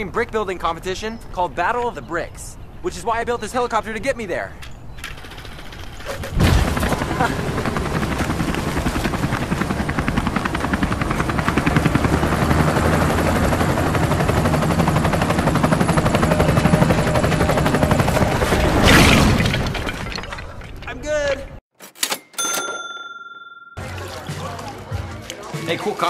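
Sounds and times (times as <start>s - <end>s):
helicopter rotor chopping: 5.0s - 18.8s
helicopter rushing overhead: 5.2s - 18.8s.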